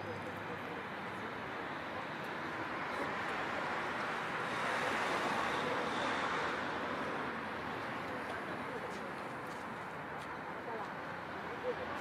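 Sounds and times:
street traffic rush: 0.0s - 12.0s.

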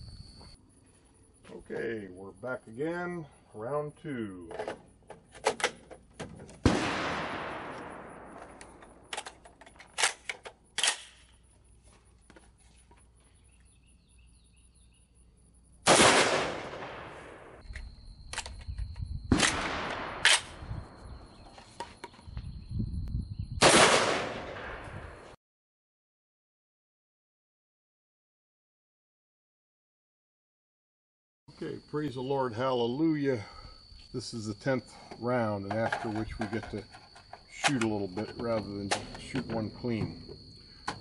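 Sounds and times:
sharp gunshot cracks: 6.6s - 8.8s, 15.9s - 17.6s, 19.3s - 20.6s, 23.6s - 25.2s
loud rifle shots with echo: 6.6s - 9.0s, 15.9s - 17.6s, 19.3s - 20.6s, 23.6s - 25.2s
metallic clacks of rifle action: 8.4s - 11.3s, 17.7s - 18.9s, 35.6s - 39.5s.

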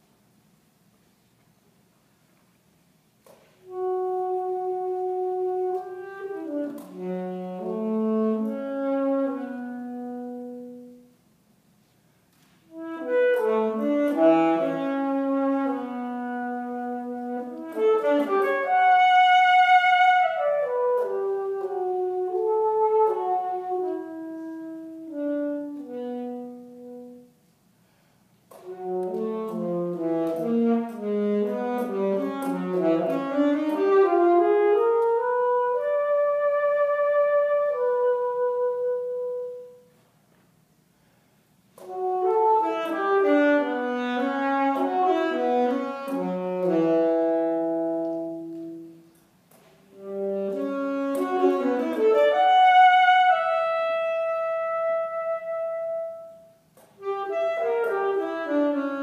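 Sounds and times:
solo alto saxophone: 3.2s - 59.0s.

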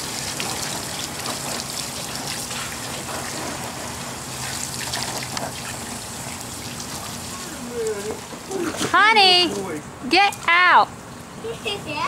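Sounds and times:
water spraying onto grass: 0.0s - 8.8s.

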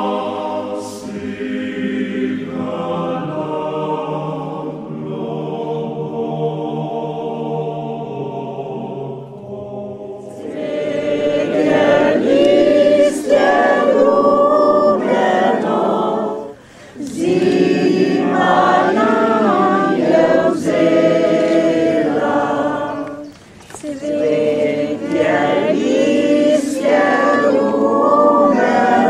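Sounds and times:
group singing unaccompanied: 0.0s - 29.0s.

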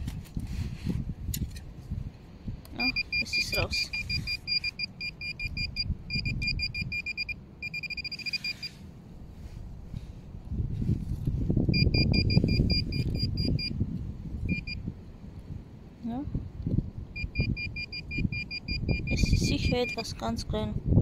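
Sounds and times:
metal detector pinpointer beeping: 2.8s - 8.8s, 11.7s - 13.8s, 14.5s - 14.8s, 17.2s - 20.3s.

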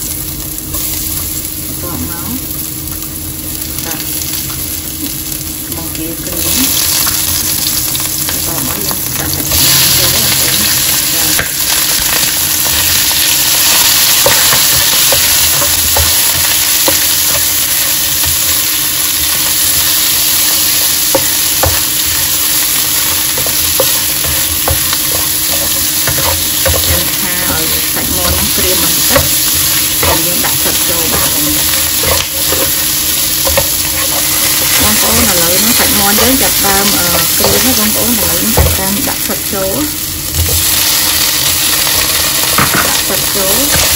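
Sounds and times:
chicken sizzling in hot oil: 0.0s - 43.9s
spatula scraping wok: 8.3s - 39.6s.

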